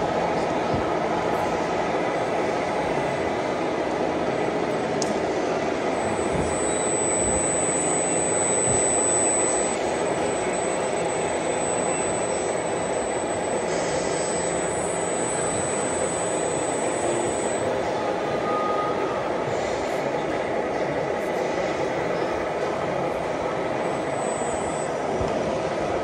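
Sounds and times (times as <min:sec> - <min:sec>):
steady engine-like drone: 0:00.0 - 0:26.0
thin high whine: 0:04.3 - 0:20.3, 0:21.3 - 0:26.0.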